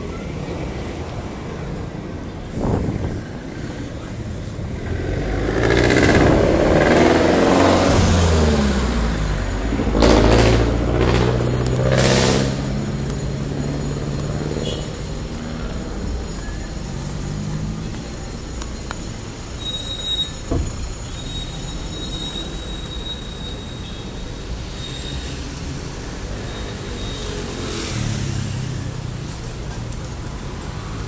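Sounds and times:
vehicle engine passing by: 4.8 - 14.6.

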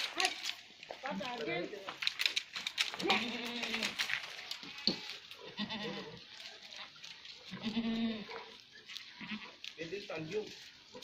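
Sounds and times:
goats bleating: 2.9 - 10.0.

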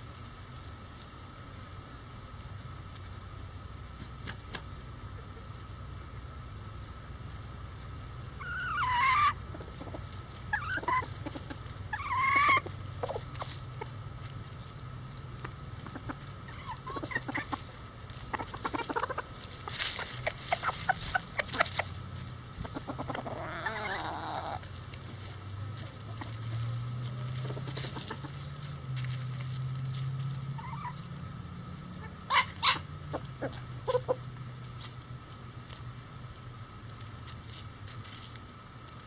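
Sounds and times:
chickens clucking and squawking: 0.0 - 39.0.

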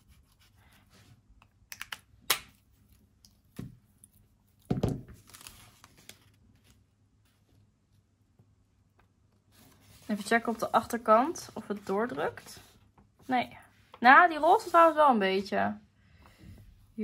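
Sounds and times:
paper rustling: 5.1 - 7.5, 9.5 - 13.4.

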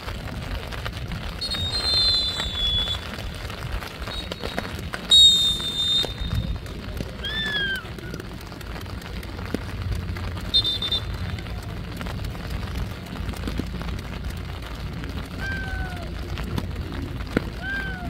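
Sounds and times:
low outdoor rumble: 0.0 - 18.0
referee's whistle blast: 1.4 - 3.0, 4.1 - 6.4, 10.5 - 11.2
person shouting: 15.4 - 16.2, 17.6 - 18.0.

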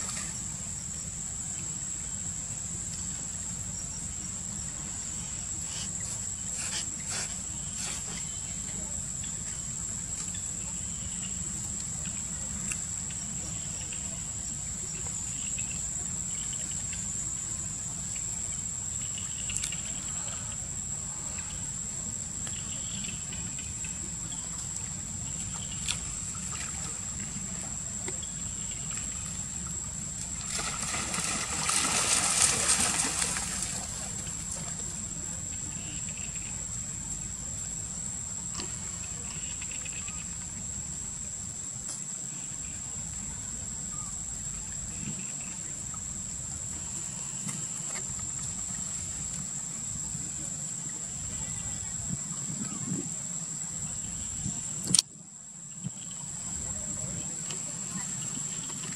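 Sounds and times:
insects shrilling: 30.4 - 34.7.

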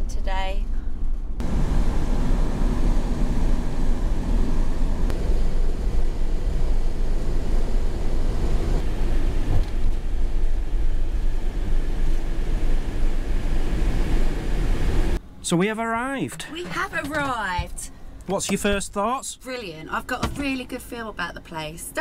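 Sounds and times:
vehicle road noise rumble: 0.0 - 15.5, 16.1 - 22.0.

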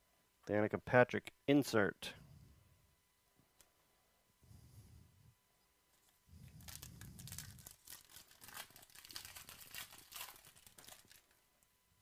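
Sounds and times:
foil wrapper tearing and crinkling: 6.6 - 11.4.

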